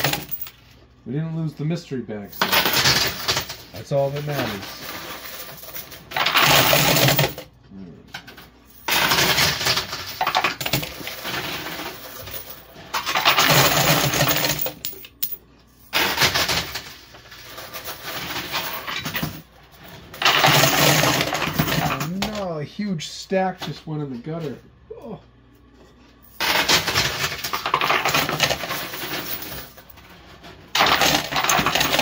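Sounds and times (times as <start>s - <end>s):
coins and chips clattering: 0.0s - 0.7s, 2.3s - 7.5s, 8.1s - 22.4s, 26.2s - 32.0s
low machine hum: 0.0s - 32.0s.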